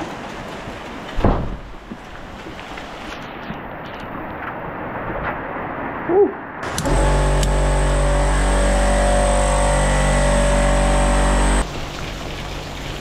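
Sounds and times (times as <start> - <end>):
rain falling: 0.0 - 4.4, 10.6 - 13.0
loud mechanical hum: 6.6 - 12.8.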